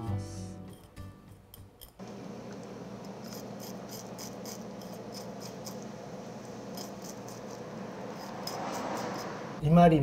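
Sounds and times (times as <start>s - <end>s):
knife scraping fish scales: 3.1s - 5.9s, 6.6s - 9.4s.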